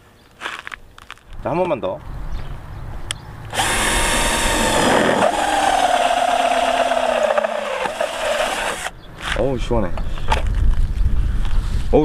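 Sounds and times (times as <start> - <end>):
drill hole saw cutting steel: 3.5 - 8.9.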